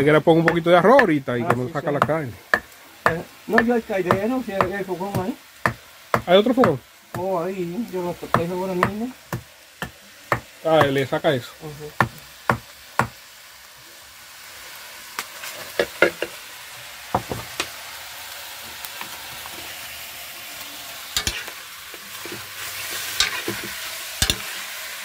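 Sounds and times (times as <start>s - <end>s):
meat sizzling in a pot: 0.0s - 25.0s
metal spoon scraping a pot: 21.2s - 21.5s, 22.2s - 24.6s.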